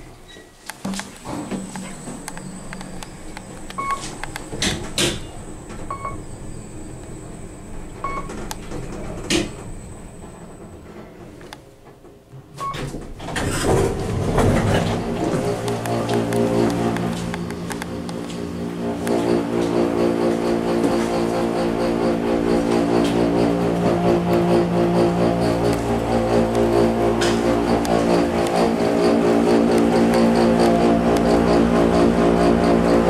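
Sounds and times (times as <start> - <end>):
clunks and clicks: 0.3 - 21.3, 22.6 - 31.5
steady low tones: 1.2 - 11.4, 13.9 - 33.0
short electronic beeps: 3.8 - 4.1, 5.9 - 6.2.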